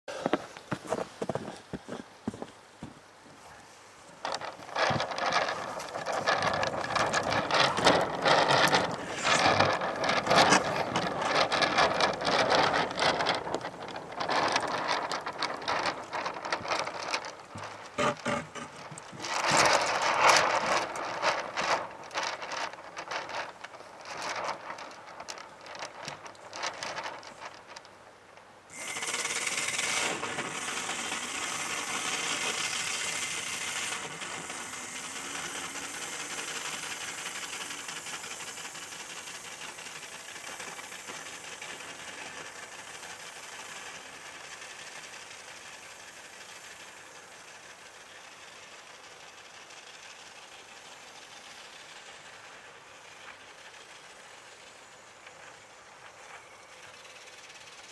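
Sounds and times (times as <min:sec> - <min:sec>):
kart rattling and knocking: 0:04.2 - 0:27.9, 0:28.8 - 0:44.5.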